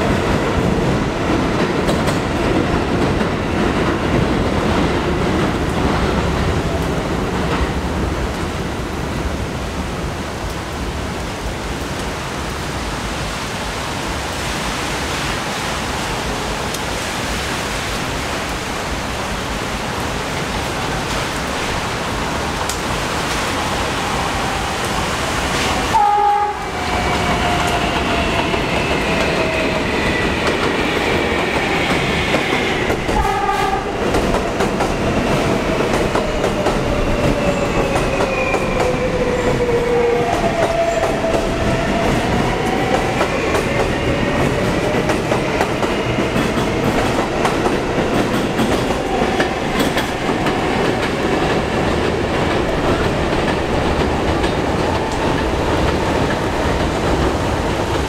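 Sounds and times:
steel wheels clattering on rail: 0.0 - 6.6, 25.5 - 58.0.

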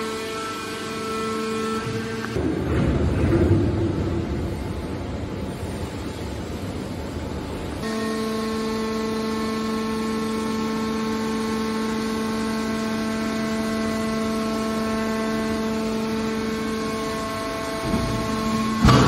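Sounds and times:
hydraulic motor and pump hum: 0.0 - 19.0
rough machine noise: 7.8 - 19.0.

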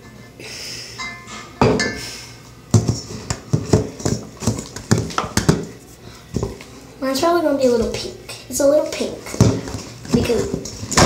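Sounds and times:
utensil stirring slime in bowl: 2.7 - 6.7, 9.0 - 11.0.

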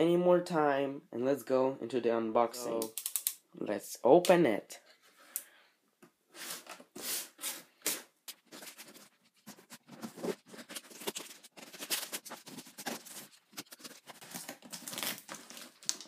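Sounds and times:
hands rubbing cardboard: 6.4 - 15.1.

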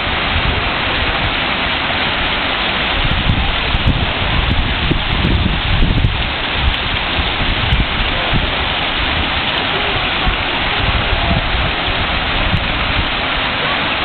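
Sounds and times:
spraying water jets: 0.0 - 14.0
water fountain splashing: 0.0 - 14.0.

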